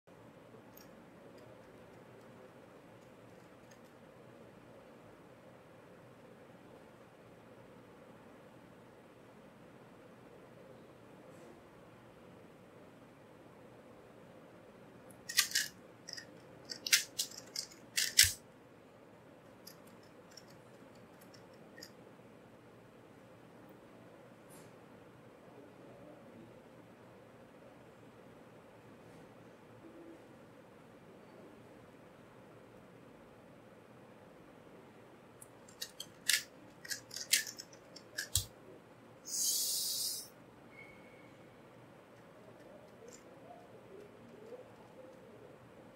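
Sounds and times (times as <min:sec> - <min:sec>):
puzzle cube plastic clicks: 0:15.2 - 0:18.4, 0:35.7 - 0:38.5.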